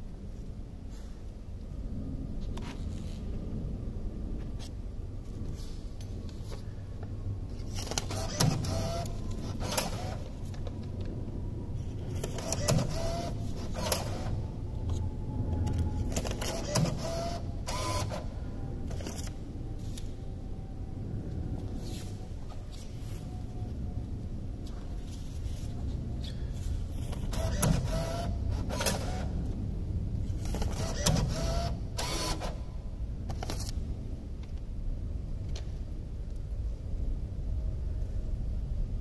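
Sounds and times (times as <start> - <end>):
banknote acceptor motor whirring: 7.8 - 10.3, 12.2 - 14.4, 16.0 - 18.3, 27.4 - 29.4, 30.4 - 32.6.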